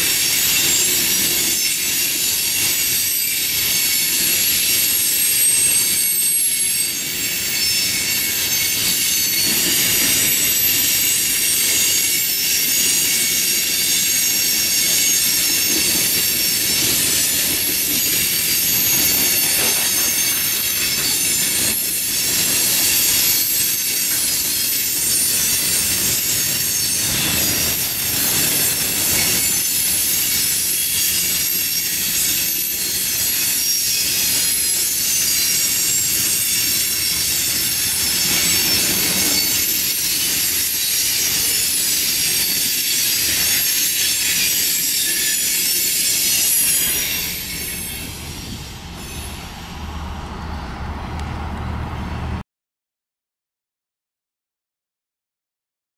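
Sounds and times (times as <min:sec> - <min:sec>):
steel wheels squealing: 0:00.0 - 0:52.4
train wheels rumbling and clattering: 0:00.0 - 0:52.4
vehicle engine hum: 0:49.5 - 0:52.4.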